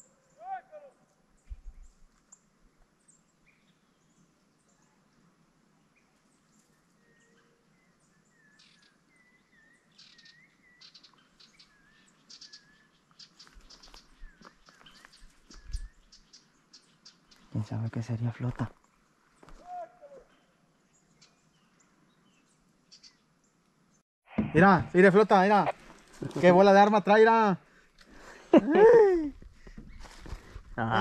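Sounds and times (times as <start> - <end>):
small birds chirping: 0.0 - 24.0
rustling dry grass and twigs: 10.8 - 17.7, 18.4 - 23.1, 25.7 - 26.8, 29.3 - 31.0.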